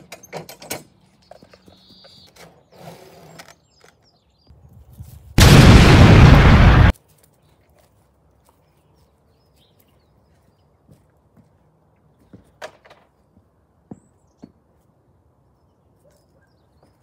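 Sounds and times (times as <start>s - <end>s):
faint outdoor background: 0.0s - 17.0s
loud blast: 5.4s - 6.9s
soft taps and scuffs: 7.0s - 12.6s.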